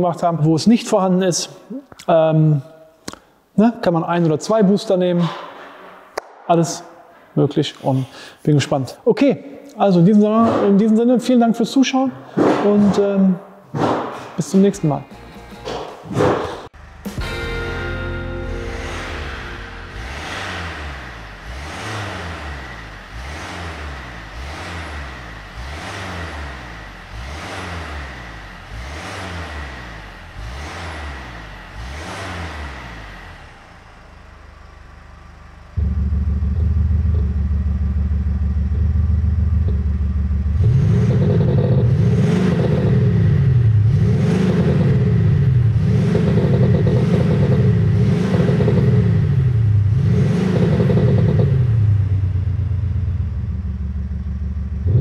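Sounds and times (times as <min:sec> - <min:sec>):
diesel engine revving: 0:15.0 - 0:55.0
loud low synthetic drone: 0:16.8 - 0:23.4, 0:32.8 - 0:46.5.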